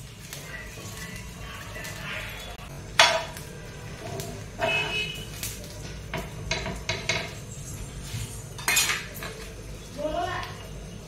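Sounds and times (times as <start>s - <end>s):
metal utensils clinking on griddle: 3.0s - 7.5s, 8.1s - 9.6s.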